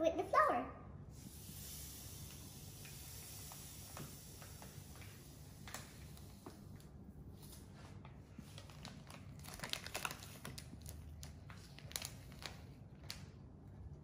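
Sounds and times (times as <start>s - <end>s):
plastic bag crinkling: 8.4s - 13.4s.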